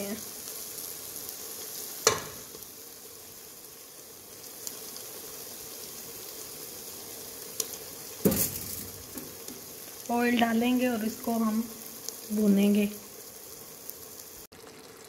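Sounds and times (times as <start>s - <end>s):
liver sizzling in a pot: 0.0s - 15.0s
sharp knocks: 2.1s - 2.4s.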